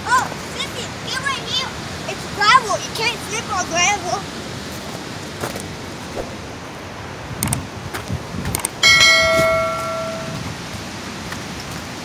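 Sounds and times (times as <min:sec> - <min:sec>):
falling water rushing: 0:00.0 - 0:12.0
notification bell ding: 0:08.8 - 0:10.4.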